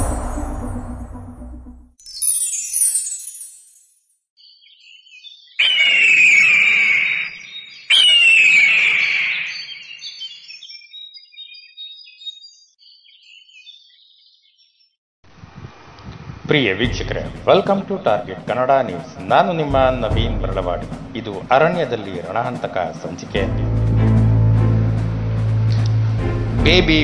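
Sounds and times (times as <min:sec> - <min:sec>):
loud hits with ringing tone: 0:00.0 - 0:02.0
falling sweep of high tones: 0:00.0 - 0:03.7.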